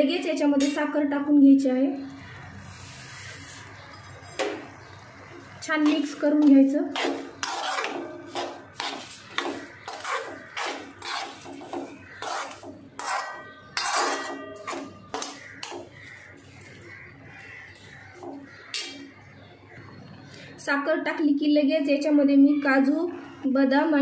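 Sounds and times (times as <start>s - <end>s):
steel spoon scraping a metal pan: 5.8s - 16.8s, 18.2s - 19.1s.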